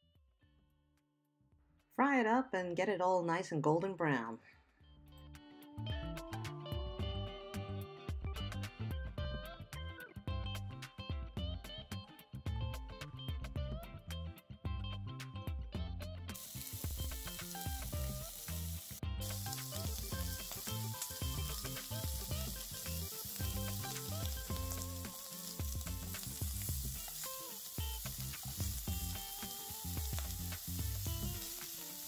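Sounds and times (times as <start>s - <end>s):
background music: 1.9s - 32.0s
meat sizzling in a pan: 16.4s - 32.0s.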